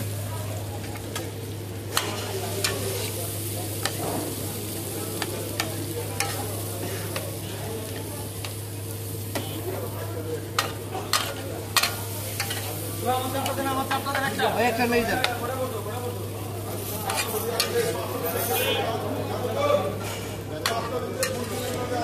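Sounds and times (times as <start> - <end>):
meat sizzling on a griddle: 0.0 - 22.0
metal spatula scraping griddle: 1.9 - 3.1, 16.8 - 18.9, 20.0 - 22.0
spatula clanking on iron: 1.9 - 3.1, 5.2 - 7.3, 10.5 - 12.8, 17.1 - 18.6, 20.0 - 22.0.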